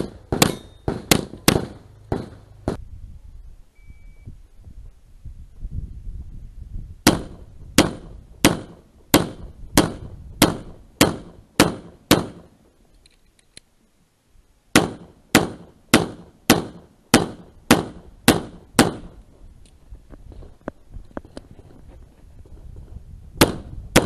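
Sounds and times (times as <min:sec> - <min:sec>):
pistol shots: 0:00.0 - 0:02.4, 0:07.0 - 0:12.5, 0:14.7 - 0:19.2, 0:23.4 - 0:24.0.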